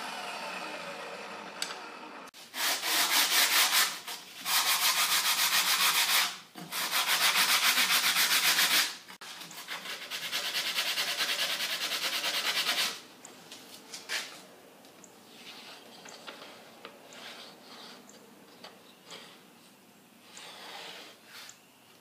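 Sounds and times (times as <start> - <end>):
wood rasping on sandpaper: 2.5 - 13.0.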